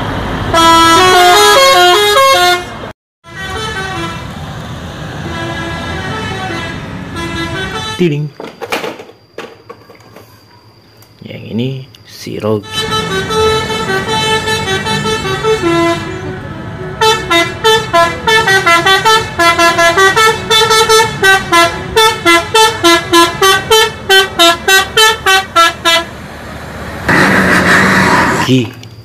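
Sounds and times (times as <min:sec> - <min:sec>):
tuned air horns playing: 0:00.5 - 0:04.3, 0:05.2 - 0:08.2, 0:12.6 - 0:26.1.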